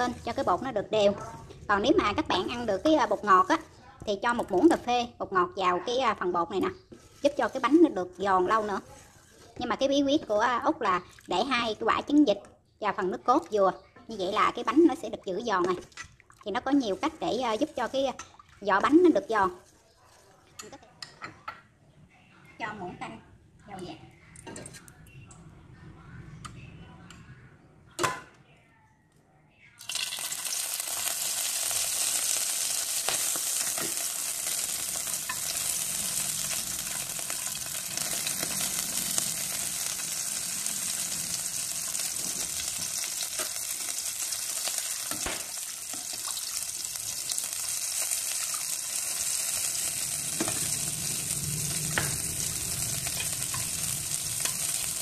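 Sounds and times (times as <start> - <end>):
oil sizzling in a hot pan: 29.8 - 55.0.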